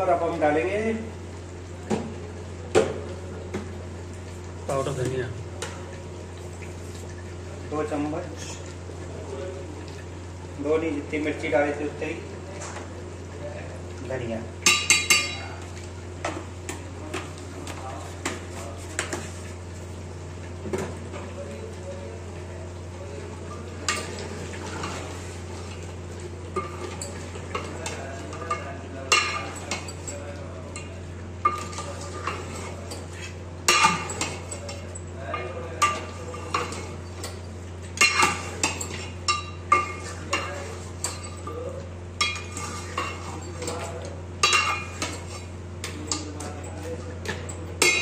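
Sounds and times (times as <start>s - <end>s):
metal ladle scraping pot: 42.2s - 43.8s.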